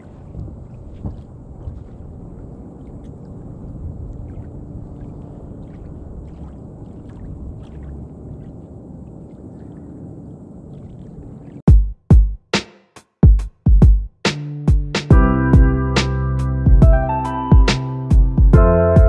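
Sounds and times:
wind rumbling on microphone: 0.0 - 11.6.

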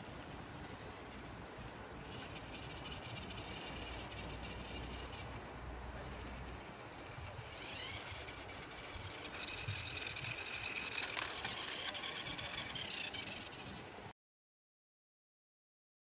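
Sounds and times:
robot drive motors whining: 2.0 - 5.4, 6.0 - 13.8.

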